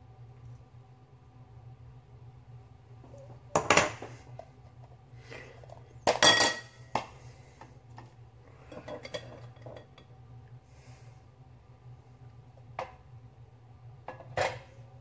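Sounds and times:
steady low hum: 0.0 - 15.0
kitchenware clinking and knocking: 6.0 - 6.8.

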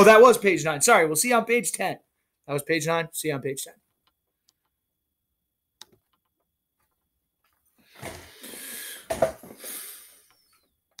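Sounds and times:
click: 5.8 - 6.4.

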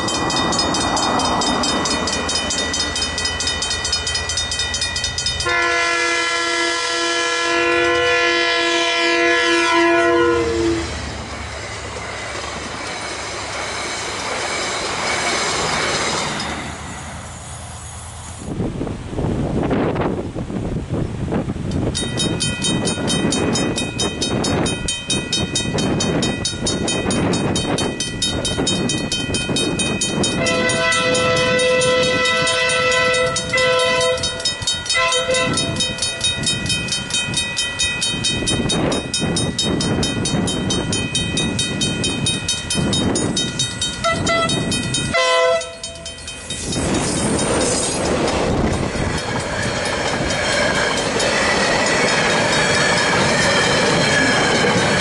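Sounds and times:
mechanical crossing bells ringing: 0.0 - 5.8, 21.9 - 55.0
train wagons rumbling on rails: 0.0 - 55.0
train horn blasts: 5.4 - 10.9, 30.3 - 36.0, 44.0 - 46.0.

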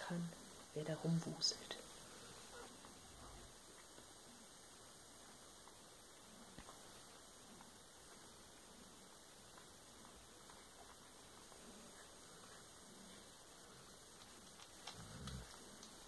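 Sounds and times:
faint ticks: 9.4 - 16.0.

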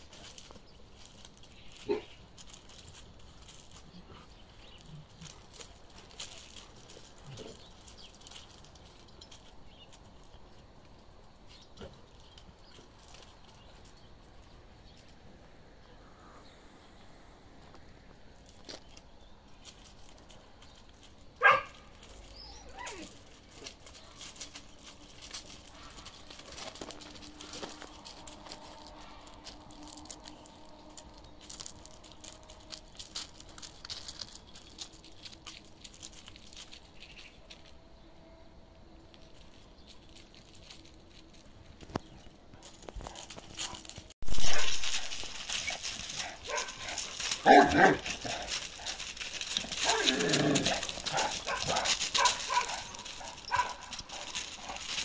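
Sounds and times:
background noise: 0.0 - 55.0
dog barking: 21.4 - 21.8, 46.4 - 46.8, 51.1 - 54.3.

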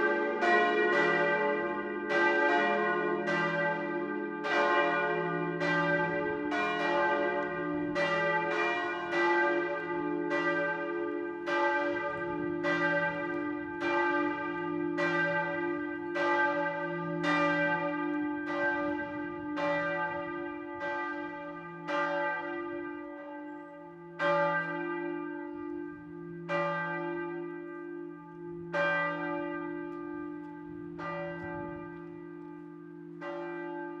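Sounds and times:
church bells pealing: 0.0 - 34.0.

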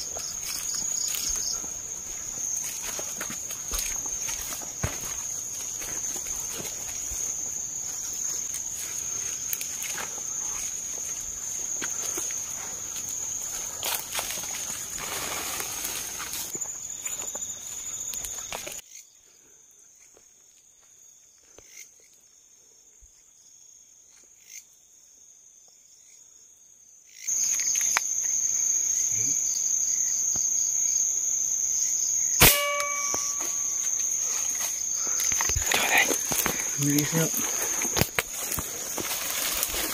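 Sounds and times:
high-pitched cricket drone: 0.0 - 19.0, 27.2 - 39.9
sharp gunshot: 32.4 - 33.1.

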